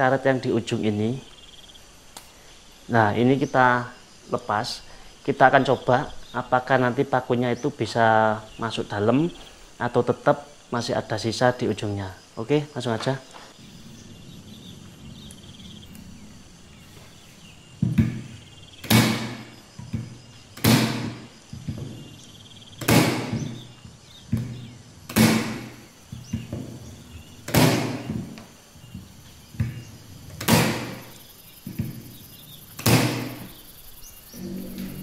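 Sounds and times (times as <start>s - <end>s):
nail gun shots: 18.8s - 20.0s, 20.6s - 21.3s, 22.8s - 23.6s, 25.1s - 25.8s, 27.5s - 28.2s, 30.4s - 31.0s, 32.8s - 33.5s.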